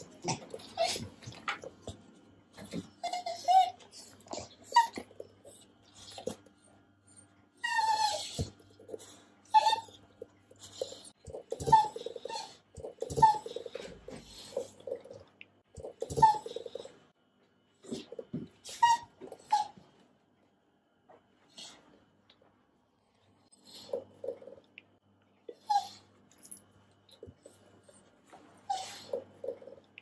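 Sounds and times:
dogs whining: 0.0 - 2.0, 2.6 - 17.0, 17.8 - 20.0, 23.6 - 24.6, 25.5 - 26.6, 27.2 - 29.9.

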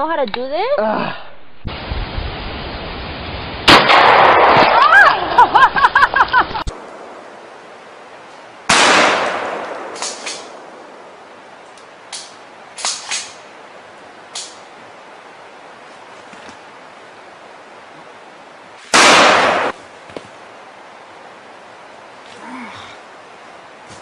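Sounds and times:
gunshot: 3.7 - 4.9, 8.7 - 10.6, 18.9 - 19.8
faint sharp cracks: 8.7 - 10.7, 11.7 - 13.4, 14.3 - 14.7.

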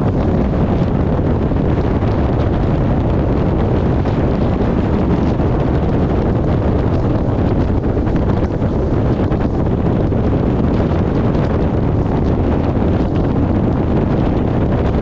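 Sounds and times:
loud low rumbling: 0.0 - 15.0.

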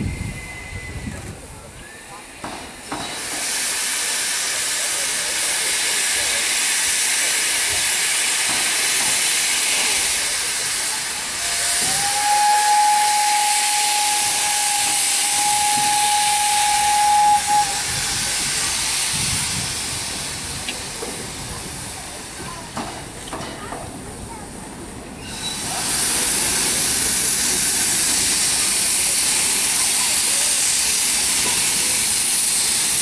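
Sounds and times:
thin steady whistle: 0.0 - 2.3, 11.4 - 18.6
steam locomotive hissing: 0.0 - 33.0.

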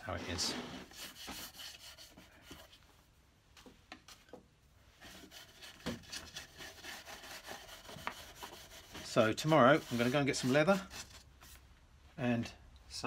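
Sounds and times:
pad rubbing on wood: 5.0 - 11.2.

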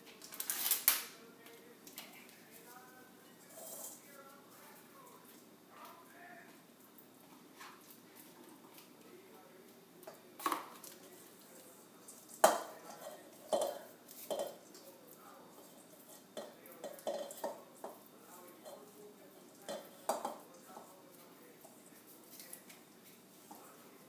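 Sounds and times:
utensil clanking in metal bowl: 3.4 - 4.1, 12.0 - 22.8.

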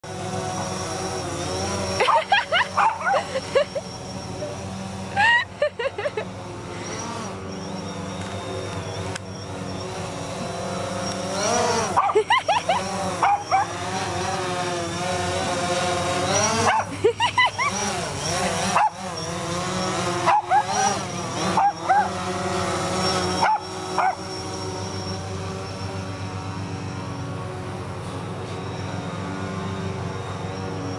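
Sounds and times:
drone propeller buzz: 0.0 - 30.9
small dog barking and yipping: 2.0 - 3.7, 11.8 - 13.8, 16.5 - 19.3, 20.2 - 22.2, 23.1 - 24.3.

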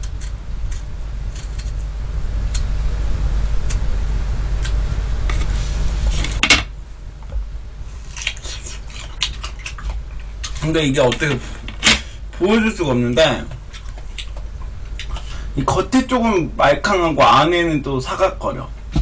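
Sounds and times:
knife peeling fruit: 0.0 - 2.8
crisp chewing: 8.0 - 10.7.

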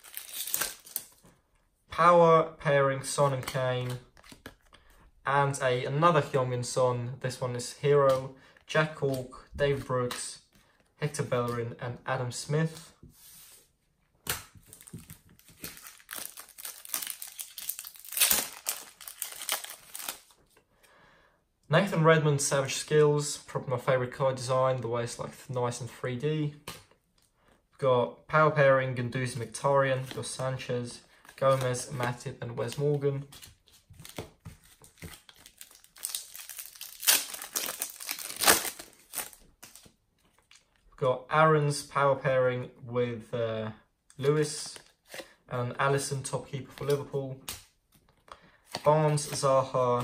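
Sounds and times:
plastic wrapper crinkling and tearing: 0.0 - 1.2, 14.6 - 20.6, 33.4 - 40.8.

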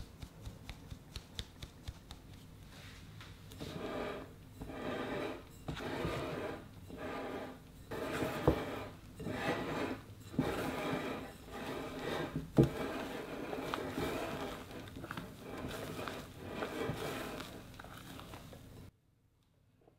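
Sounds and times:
spatula scraping batter in bowl: 3.5 - 18.9.

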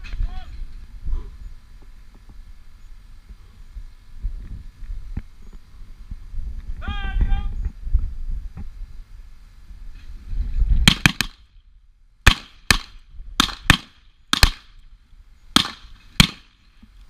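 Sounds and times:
handgun shots: 10.9 - 11.4, 12.3 - 14.7, 15.6 - 16.5.

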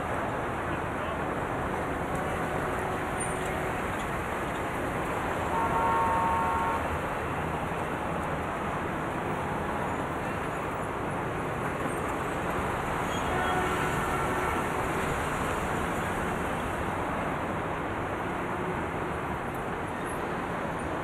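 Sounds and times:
road traffic: 0.0 - 21.0
vehicle horn: 5.5 - 6.8, 13.1 - 14.8.

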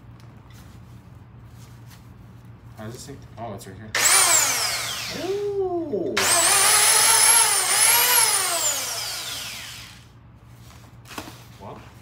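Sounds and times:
circular saw whining: 4.0 - 10.1.

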